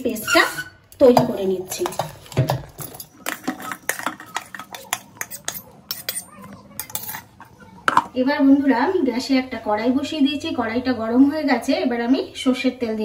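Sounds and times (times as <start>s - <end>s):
metal spoon scraping steel bowl: 3.2s - 7.4s.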